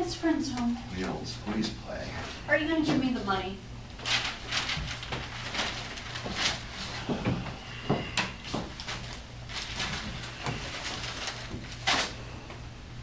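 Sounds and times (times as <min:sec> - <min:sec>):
newspaper rustling: 0:03.9 - 0:12.4.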